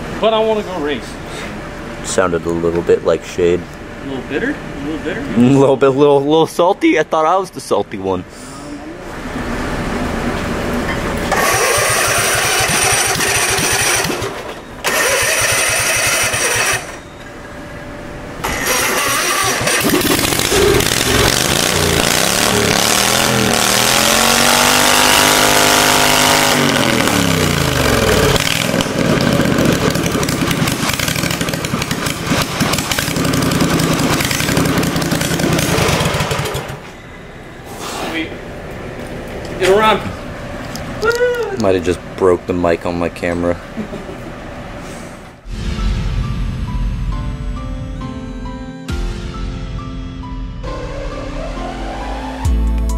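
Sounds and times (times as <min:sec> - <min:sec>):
lawnmower engine running: 0:09.5 - 0:17.1, 0:18.4 - 0:36.9.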